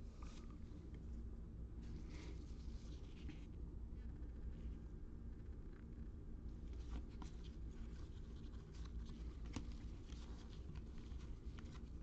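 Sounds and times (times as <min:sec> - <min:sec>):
low steady hum: 0:00.0 - 0:12.0
trading cards rustling and clicking: 0:06.8 - 0:12.0.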